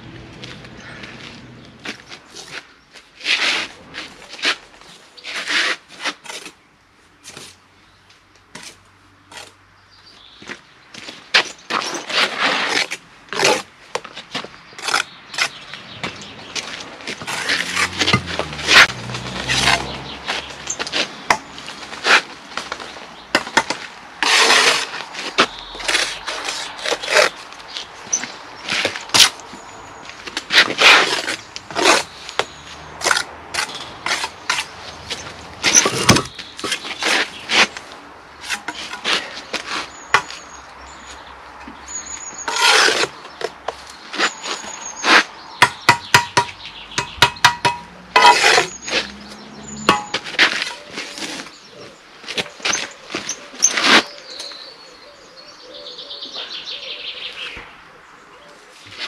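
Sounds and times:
trowel scraping mortar: 0:03.2 - 0:06.6, 0:11.4 - 0:13.7, 0:14.8 - 0:15.6, 0:16.7 - 0:22.8, 0:23.4 - 0:27.4, 0:30.4 - 0:40.5, 0:42.1 - 0:43.4, 0:45.9 - 0:54.6.

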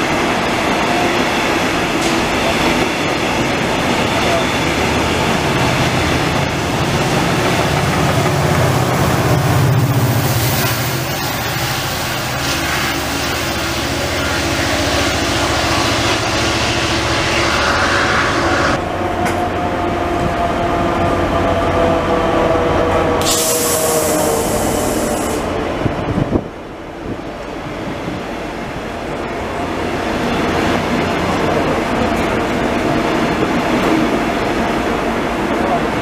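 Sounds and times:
train wheels on rails: 0:00.0 - 0:36.0
locomotive hiss: 0:23.2 - 0:25.5.

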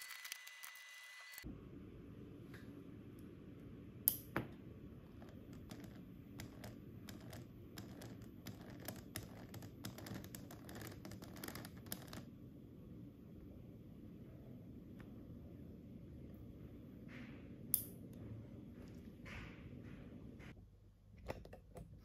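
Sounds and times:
motor clicks and ticks: 0:00.0 - 0:01.4.

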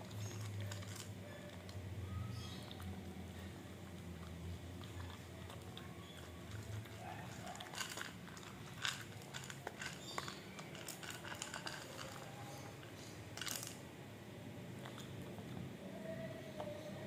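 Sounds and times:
dog chewing crunchy food: 0:03.7 - 0:13.6.

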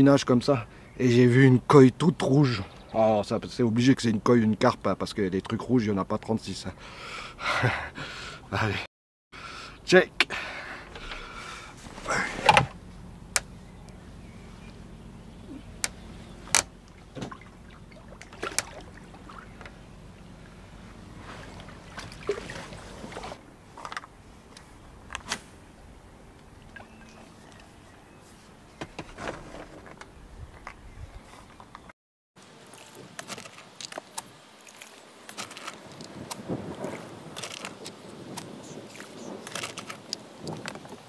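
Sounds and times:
water sloshing: 0:15.4 - 0:29.7.

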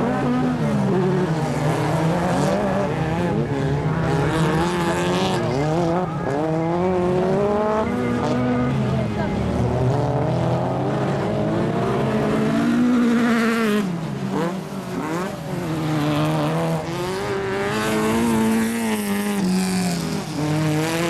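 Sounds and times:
race car engines revving: 0:00.0 - 0:21.0.

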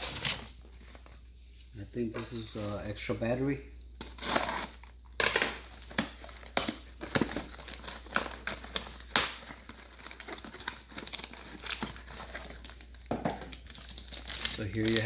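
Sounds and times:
plastic wrap crinkling: 0:02.0 - 0:03.4, 0:04.0 - 0:15.0.

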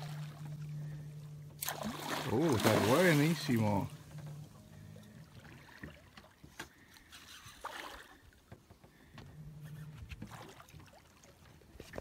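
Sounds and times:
water sloshing against boat hull: 0:00.0 - 0:12.0
fish thrashing at water surface: 0:01.6 - 0:03.8.

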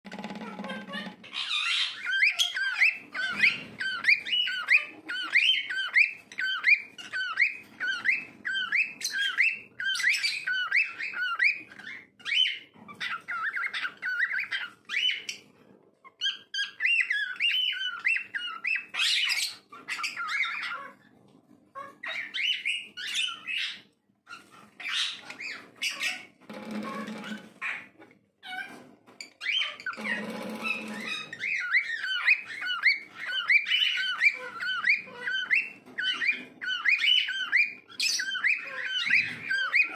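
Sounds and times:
cockatiel whistling: 0:01.9 - 0:15.3, 0:29.4 - 0:39.9.

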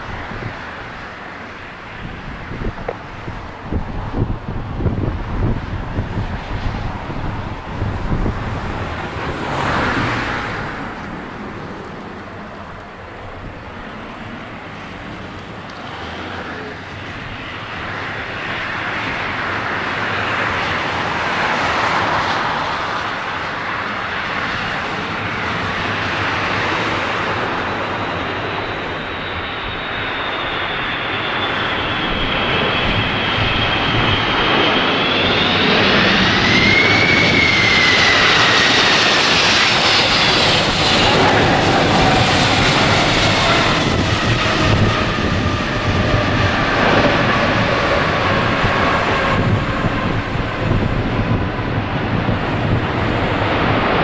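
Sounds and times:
jet engines rushing: 0:00.0 - 0:54.0
high fan whine: 0:30.4 - 0:53.5.

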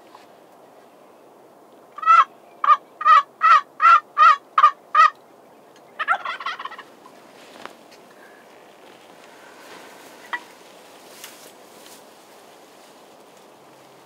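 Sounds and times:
turkey gobbling: 0:02.0 - 0:05.2, 0:06.0 - 0:06.9, 0:10.2 - 0:10.6
turkey yelping: 0:02.0 - 0:05.2, 0:06.0 - 0:06.9.

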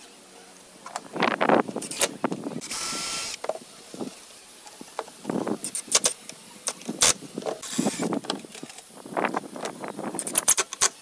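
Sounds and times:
cordless drill whirring: 0:02.6 - 0:03.4, 0:07.6 - 0:08.1.

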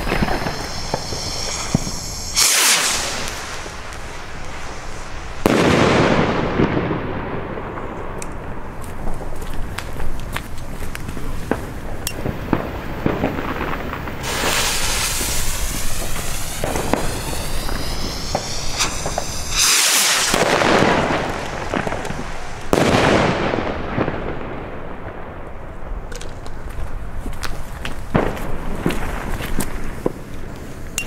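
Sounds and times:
crackling pops: 0:00.0 - 0:05.4, 0:13.1 - 0:22.7
firework hissing launch: 0:00.0 - 0:06.8, 0:13.0 - 0:23.7
loud firework bursts: 0:00.0 - 0:07.9, 0:11.4 - 0:24.8.

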